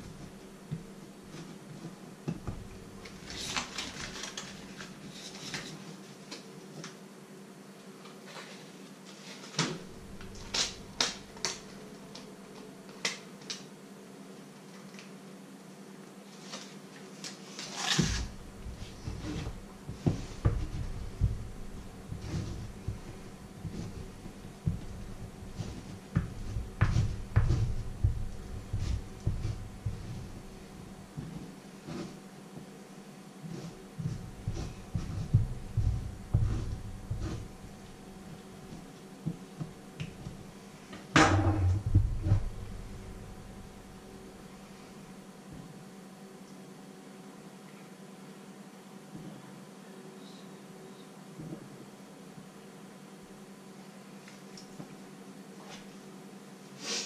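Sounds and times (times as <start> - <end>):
foil wrapper rustle: 3.2 - 5.6
knife scraping butter on bread: 17.9 - 30.5, 33.5 - 37.6
knife knocking on wooden board: 18.2 - 30.3, 34.5 - 37.5.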